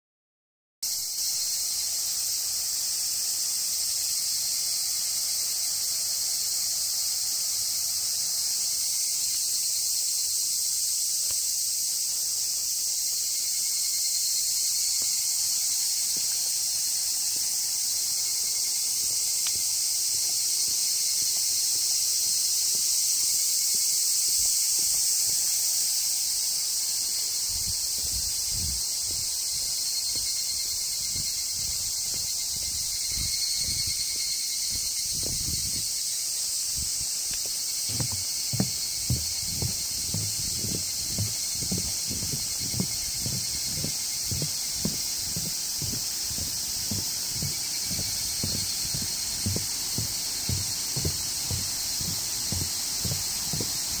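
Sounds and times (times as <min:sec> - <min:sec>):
insects chorus: 0:00.8 - 0:54.0
low thumps: 0:37.9 - 0:54.0.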